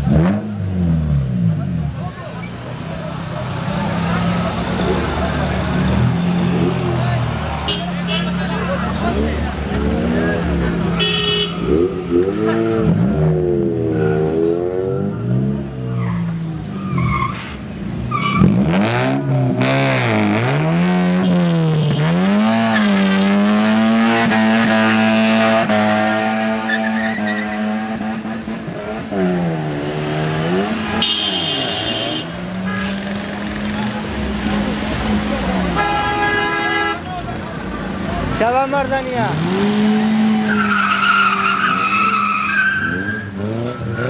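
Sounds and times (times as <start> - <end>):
car engine revving: 0.0 - 44.0
car horn: 7.6 - 8.7, 10.8 - 12.3, 21.1 - 22.9, 30.5 - 34.0, 35.6 - 37.2
tyres squealing: 39.3 - 44.0.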